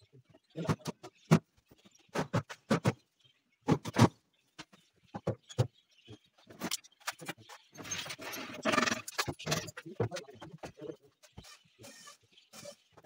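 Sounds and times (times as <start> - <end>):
wooden boards and tools knocking: 0.6 - 5.8.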